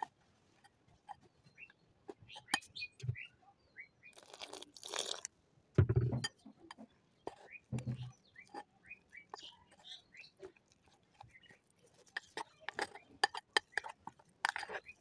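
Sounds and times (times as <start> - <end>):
water pouring into a bowl: 4.2 - 5.3
fork scraping a glass bowl: 6.3 - 15.0.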